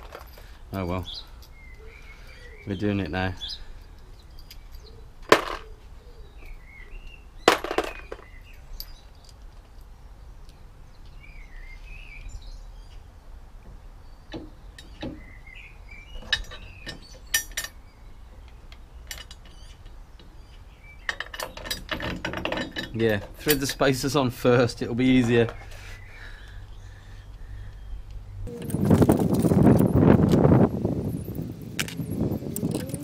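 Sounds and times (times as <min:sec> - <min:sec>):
metal parts clinking: 0:00.0 - 0:01.6, 0:03.7 - 0:05.7, 0:07.5 - 0:10.6, 0:16.1 - 0:17.8, 0:18.4 - 0:20.3, 0:21.0 - 0:24.4, 0:31.8 - 0:33.0
birds chirping: 0:00.0 - 0:33.0.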